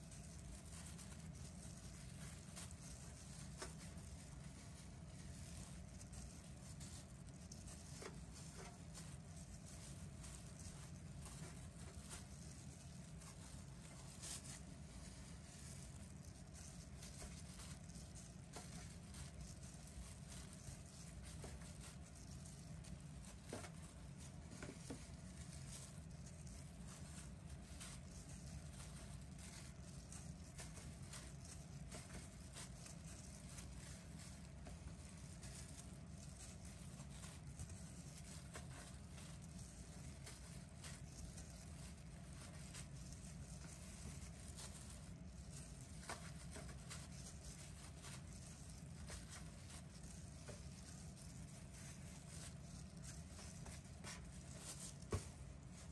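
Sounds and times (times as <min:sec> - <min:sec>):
plastic rustling: 0:00.0 - 0:55.9.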